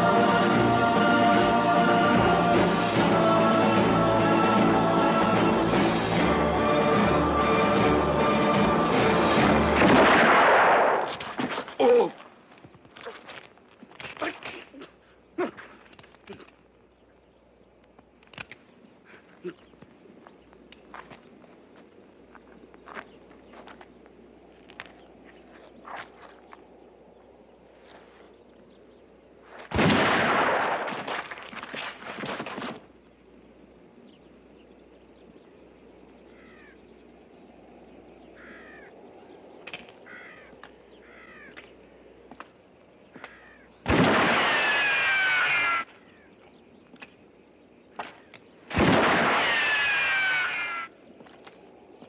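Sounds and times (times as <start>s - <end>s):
revolver gunshots echoing: 9.8s - 11.2s, 29.7s - 31.2s, 43.8s - 45.0s, 48.7s - 50.0s
faint chirps and ticks: 14.8s - 29.3s, 33.0s - 43.8s, 45.9s - 48.7s
ricochet whine: 43.2s - 46.0s, 48.0s - 50.9s.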